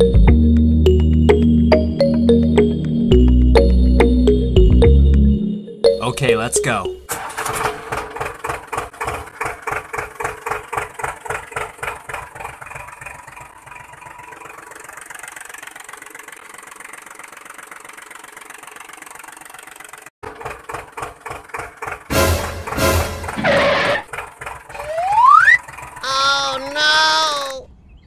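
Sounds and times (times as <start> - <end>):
tractor diesel engine chugging: 6.0 - 27.0.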